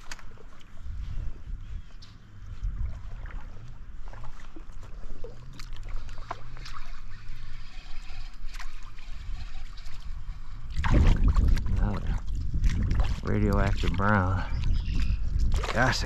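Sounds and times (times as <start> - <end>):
stream flowing and trickling: 0.0 - 16.0
wind on microphone: 0.0 - 16.0
small splashes and knocks: 2.6 - 10.1, 10.7 - 14.0, 15.4 - 16.0.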